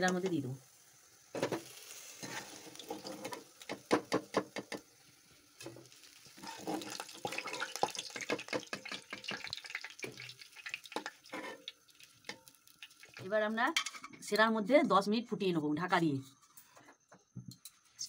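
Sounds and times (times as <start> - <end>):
hot oil sizzling: 0.0 - 14.1.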